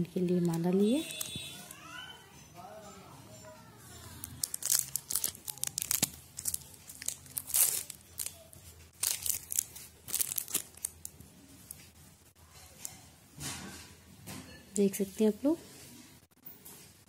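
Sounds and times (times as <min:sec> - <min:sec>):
plastic packaging crinkling: 0:04.1 - 0:11.8.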